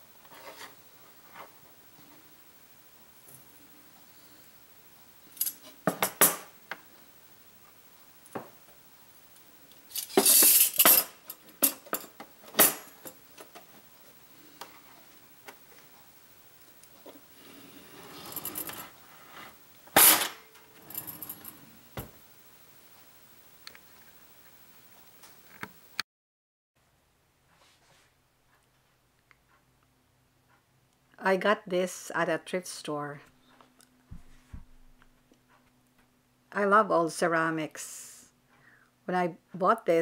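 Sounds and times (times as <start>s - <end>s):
drawer sliding: 17.1s - 22.2s.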